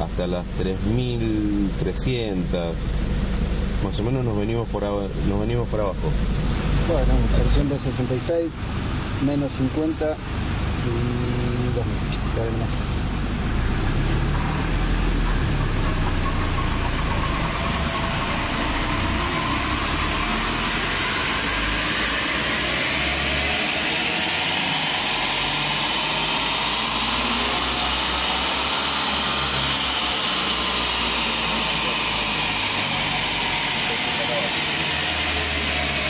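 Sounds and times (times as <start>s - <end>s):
diesel engine revving: 0.0s - 36.0s
rising whine: 0.0s - 36.0s.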